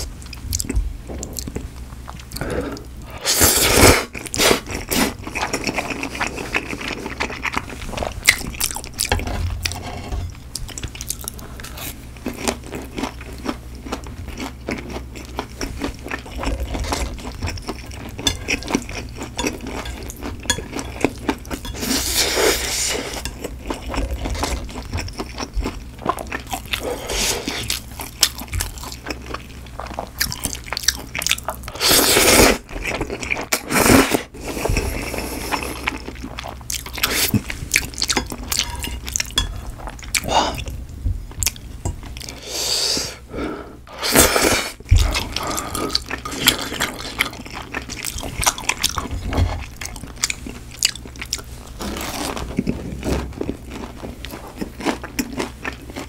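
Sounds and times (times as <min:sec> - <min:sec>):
chewing and mouth sounds: 0:04.1 - 0:09.8, 0:10.5 - 0:40.8, 0:41.4 - 0:42.4, 0:44.2 - 0:56.0
chopsticks scraping tray: 0:09.1 - 0:10.4.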